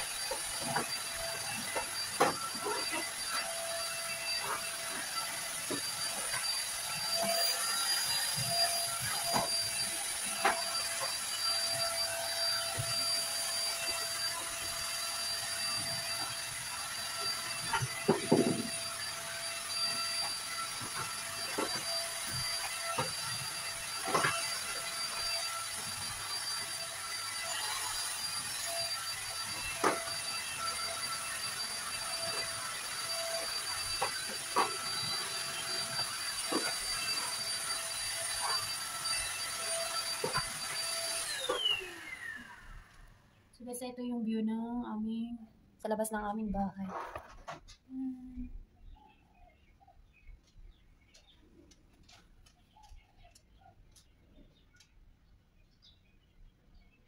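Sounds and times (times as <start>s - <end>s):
stick vacuum cleaner running: 0.0s - 43.2s.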